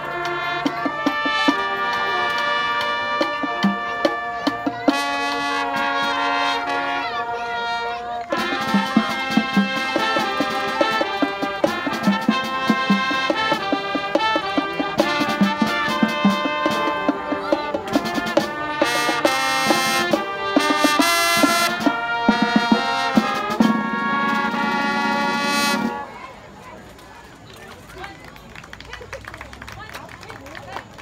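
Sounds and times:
saxophone: 0.0 - 26.2
trumpets and trombones: 0.0 - 26.6
percussion hits: 8.2 - 26.0.

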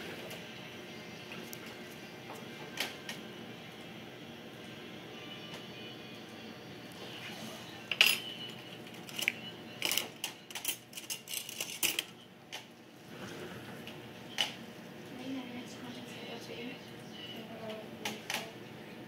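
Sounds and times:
metal instruments clinking: 9.0 - 12.1.

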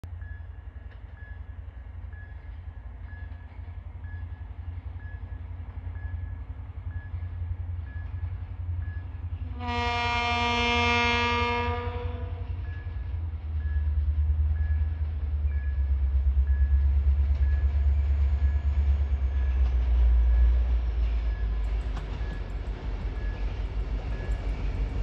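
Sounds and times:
locomotive rumble: 0.1 - 25.0
locomotive horn blast: 9.4 - 12.6.

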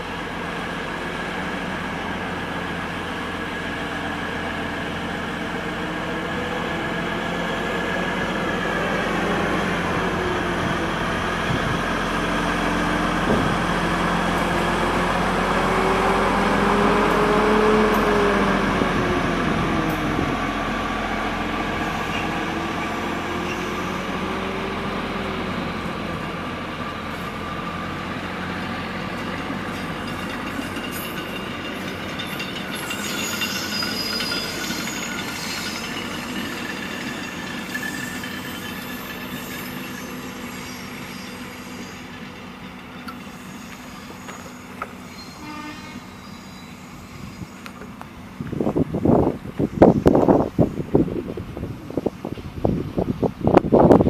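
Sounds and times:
train engine and wheels rumbling: 0.0 - 54.0
wavering whine: 29.8 - 52.7.

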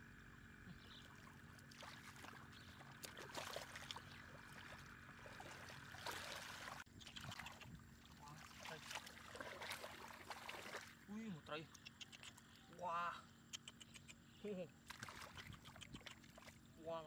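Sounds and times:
hands sloshing in muddy water: 0.8 - 11.1, 14.8 - 16.8.

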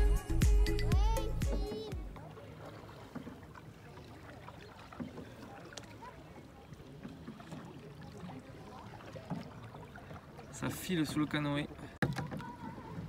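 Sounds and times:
background music: 0.0 - 2.2
water lapping against canoe hull: 0.9 - 13.0
small splashes and knocks: 1.5 - 13.0.

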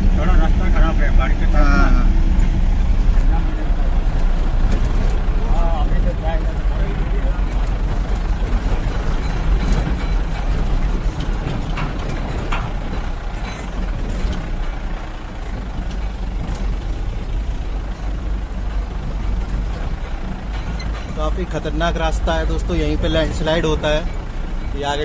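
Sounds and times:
tyres on gravel road: 0.0 - 25.0
vehicle engines rumbling: 0.0 - 25.0
short rattles: 7.4 - 25.0.

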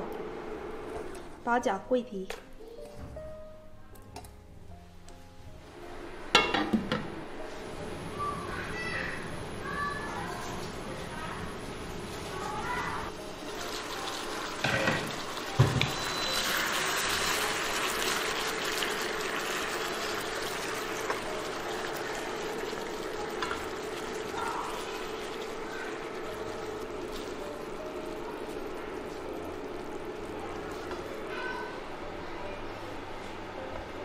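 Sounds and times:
chicken sizzling in sauce: 7.4 - 32.0.

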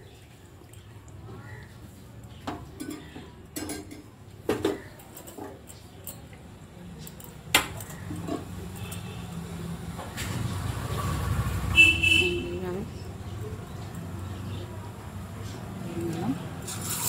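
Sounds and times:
utensils clinking on cookware: 2.5 - 6.4, 7.0 - 9.4, 16.0 - 17.0.

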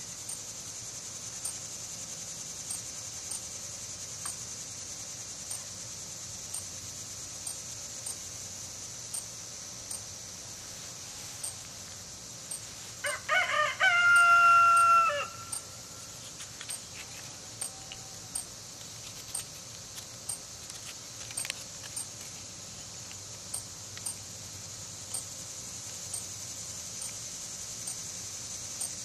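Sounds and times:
faint regular ticks: 0.0 - 13.2, 14.0 - 29.0
steady high hiss: 0.0 - 29.0
rooster crowing: 13.0 - 16.1.

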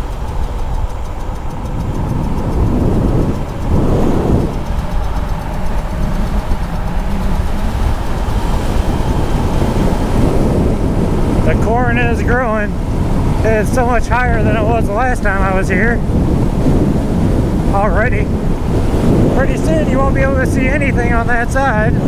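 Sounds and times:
faint motor whine: 0.0 - 21.8
wind rushing: 0.0 - 22.0.

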